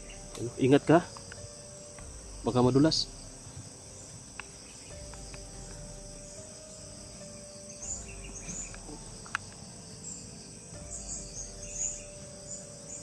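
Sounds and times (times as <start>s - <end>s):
crickets chirping: 0.0s - 13.0s
faint ticks: 0.2s - 2.2s, 3.5s - 6.5s, 7.9s - 9.8s.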